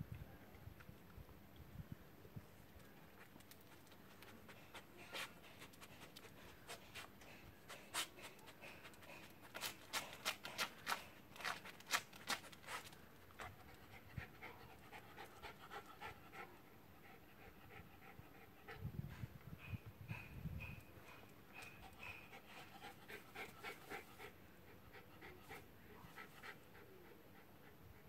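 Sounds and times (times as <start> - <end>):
dog sniffing: 4.3 - 12.9.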